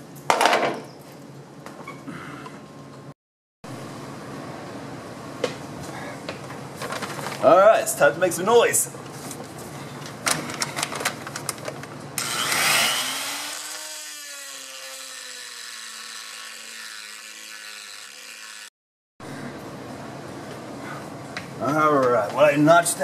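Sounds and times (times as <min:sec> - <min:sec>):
angle grinder grinding metal: 0:12.2 - 0:18.7.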